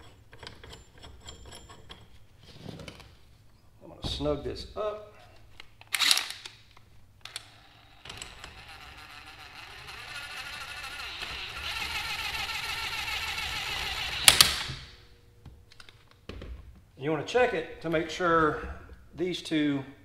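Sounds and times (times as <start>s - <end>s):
power tool whirring: 7.3s - 14.9s.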